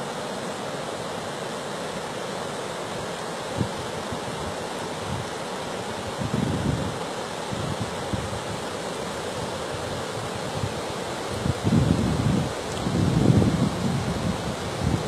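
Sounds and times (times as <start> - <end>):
floodwater rushing: 0.0 - 15.0
wind buffeting microphone: 6.0 - 15.0.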